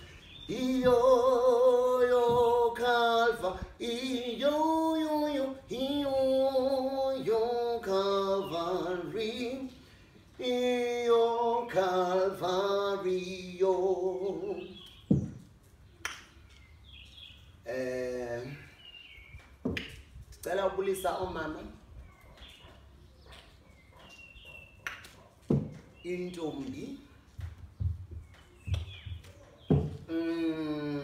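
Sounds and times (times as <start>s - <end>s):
person singing unaccompanied: 0.0s - 15.3s, 29.7s - 31.0s.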